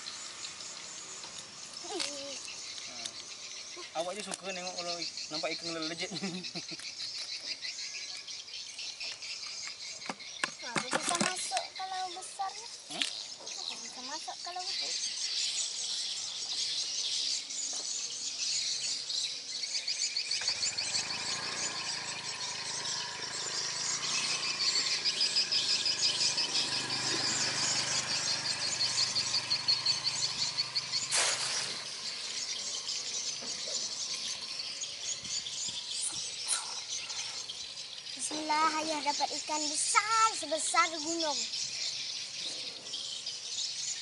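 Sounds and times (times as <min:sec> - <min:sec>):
high pulsing insect trill: 0:00.0 - 0:44.0
cast net splashing into water: 0:31.1 - 0:32.0.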